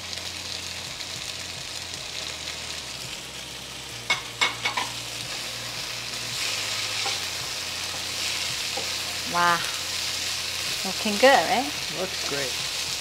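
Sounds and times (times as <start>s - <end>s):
stir-fry sizzling in a wok: 0.0s - 13.0s.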